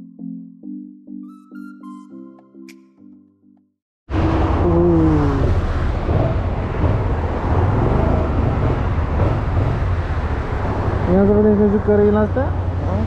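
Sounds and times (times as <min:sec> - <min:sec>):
vehicle engine and road rumble: 0:04.1 - 0:13.0.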